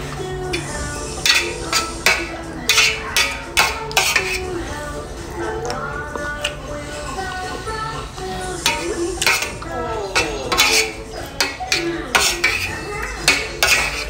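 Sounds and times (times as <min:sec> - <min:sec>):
music: 0:00.0 - 0:14.0
spoon scraping a metal bowl: 0:00.5 - 0:04.6, 0:08.6 - 0:14.0.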